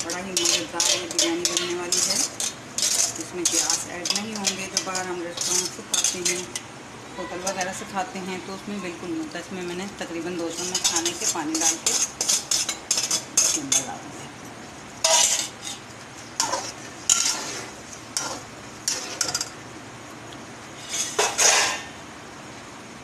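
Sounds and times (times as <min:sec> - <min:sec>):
metal spatula scraping a pot: 0:00.0 - 0:06.6, 0:10.4 - 0:13.9, 0:15.0 - 0:19.5, 0:20.8 - 0:21.9.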